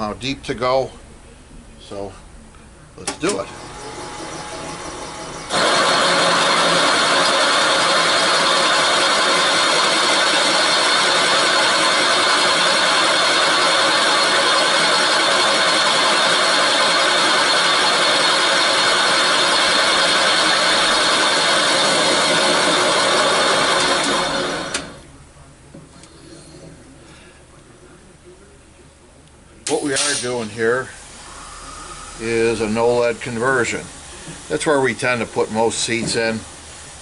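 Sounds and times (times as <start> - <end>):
milling machine whining: 3.1 - 25.1.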